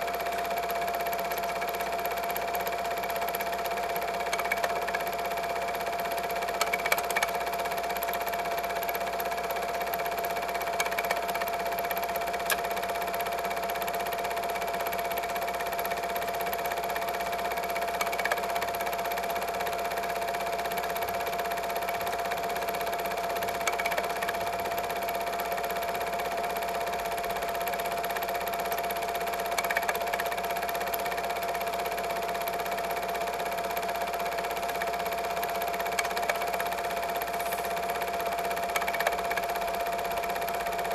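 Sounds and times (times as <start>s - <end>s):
film projector motor whirring: 0.0s - 40.9s.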